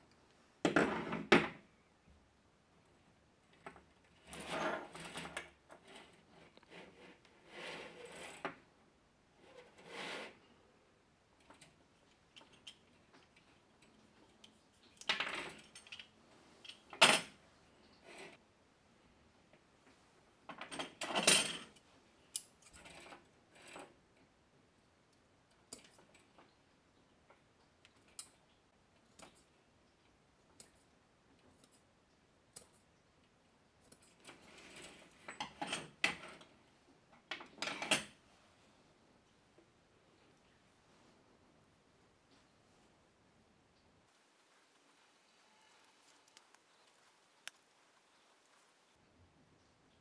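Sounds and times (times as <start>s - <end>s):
faint clicks of small parts: 11.3s - 18.4s, 19.5s - 38.2s, 45.6s - 48.7s.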